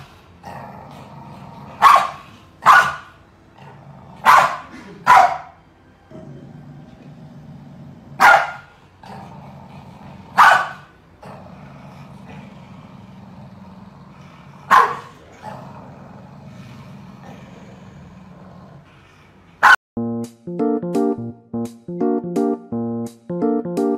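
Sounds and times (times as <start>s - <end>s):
dog barking: 1.8s - 3.2s, 4.2s - 5.6s, 8.2s - 8.7s, 10.4s - 10.9s, 14.7s - 15.1s, 19.6s - 19.8s.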